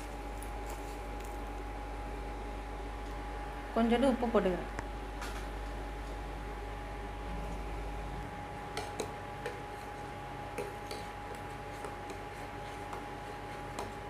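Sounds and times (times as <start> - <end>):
steady hum with high tone: 0.0 - 14.0
ladle stirring in pot: 8.7 - 14.0.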